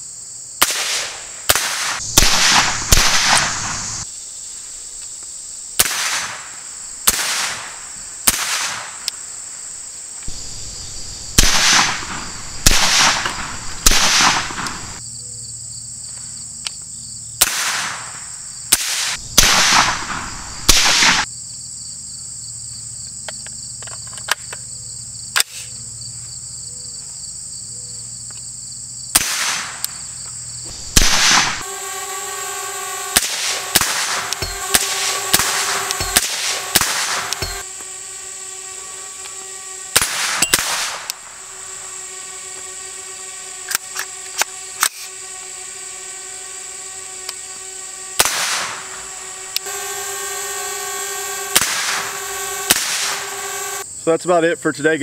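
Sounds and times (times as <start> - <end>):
insects buzzing: 0.0 - 55.0
suppressed gunshots: 0.6 - 3.9, 5.8 - 9.0, 10.3 - 15.0, 17.4 - 21.2, 29.2 - 29.8, 30.7 - 31.6, 33.1 - 37.6, 39.9 - 41.2, 48.2 - 48.8, 51.5 - 53.4.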